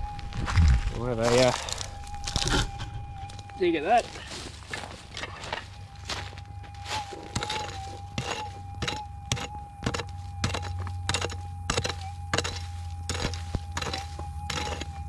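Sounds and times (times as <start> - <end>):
metal detector tone: 0.0 - 15.0
digging tool striking ground: 6.9 - 15.0.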